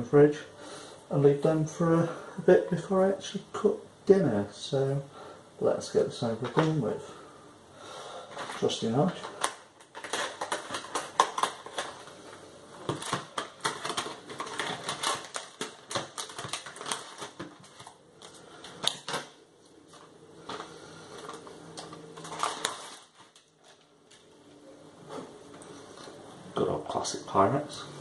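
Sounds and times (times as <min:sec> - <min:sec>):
plastic packaging crinkling: 0:06.4 - 0:07.0, 0:08.3 - 0:24.4
knife cutting plastic film: 0:09.3 - 0:12.0, 0:12.9 - 0:19.3.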